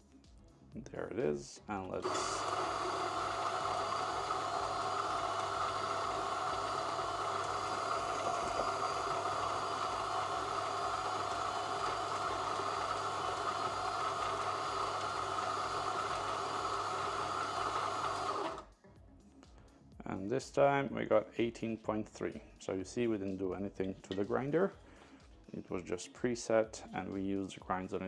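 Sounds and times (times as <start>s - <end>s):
coffee grinder whirring: 1.9s - 18.7s.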